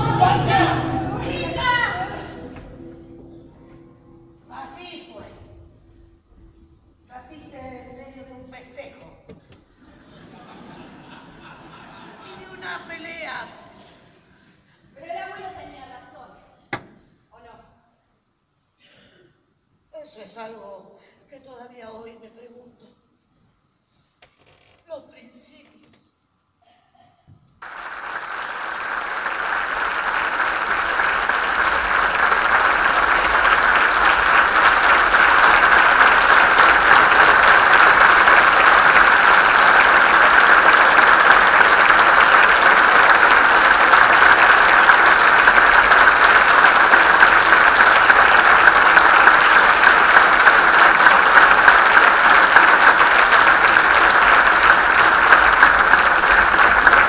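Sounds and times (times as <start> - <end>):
audience applauding: 0.0 - 0.6, 27.6 - 57.0.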